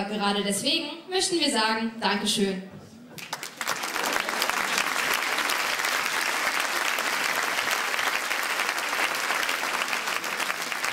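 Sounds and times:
audience applauding: 3.2s - 10.9s.

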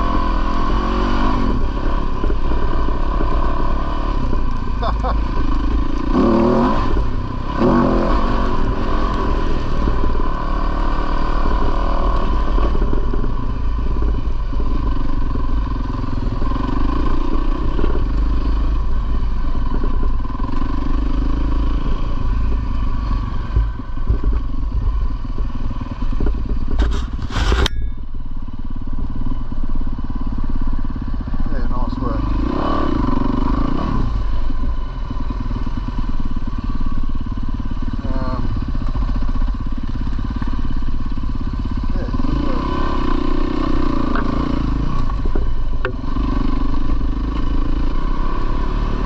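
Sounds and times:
dirt bike engine revving: 0.0s - 23.9s, 30.9s - 49.0s
sharp knocks and clatter: 23.5s - 28.1s.

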